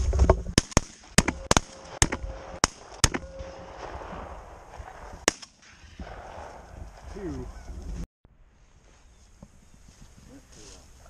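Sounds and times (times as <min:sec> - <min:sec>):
shotgun shots: 0:00.6 - 0:06.7.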